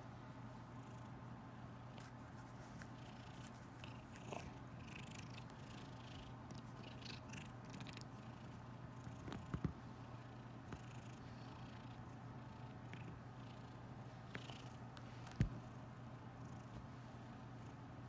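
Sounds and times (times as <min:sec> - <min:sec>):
soft rustling: 0:01.9 - 0:04.6
cat purring: 0:02.9 - 0:14.8.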